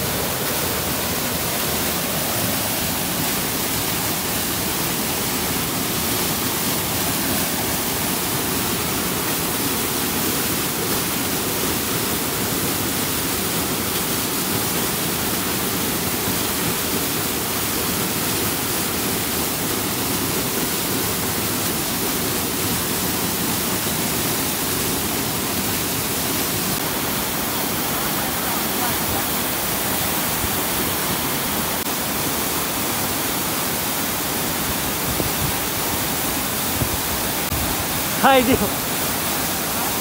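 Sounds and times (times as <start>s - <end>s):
fast-flowing mountain stream: 0.0s - 40.0s.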